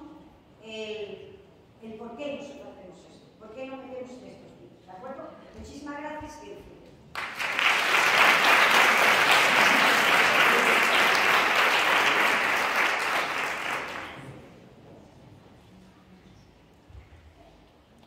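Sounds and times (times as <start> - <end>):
audience applauding: 7.2 - 14.5.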